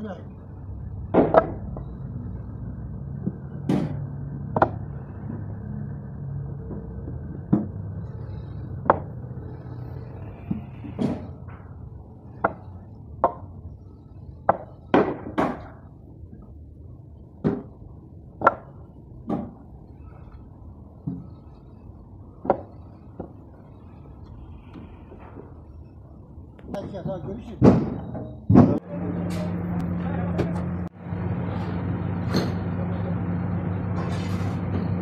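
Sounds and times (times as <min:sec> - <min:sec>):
wooden blocks knocking together: 0:01.1 - 0:01.9, 0:03.2 - 0:04.8, 0:12.3 - 0:13.5, 0:14.4 - 0:15.8, 0:18.4 - 0:19.6.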